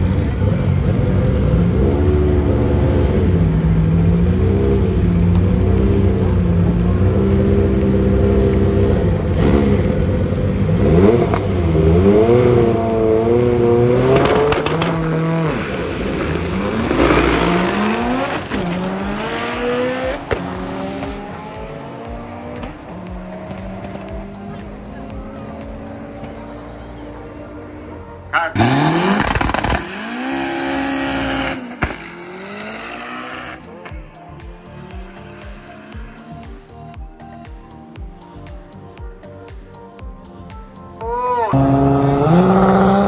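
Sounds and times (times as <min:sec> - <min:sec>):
drag car engine revving: 0:00.0 - 0:27.1, 0:28.4 - 0:33.9, 0:41.4 - 0:43.0
car accelerating through gear changes: 0:00.0 - 0:27.8, 0:28.6 - 0:33.9, 0:41.3 - 0:43.0.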